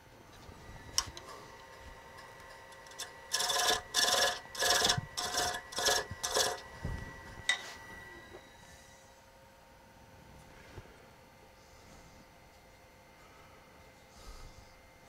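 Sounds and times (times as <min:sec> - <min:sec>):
lathe whine: 0:00.0 - 0:15.0
chisel rasping on spinning wood: 0:02.2 - 0:06.7.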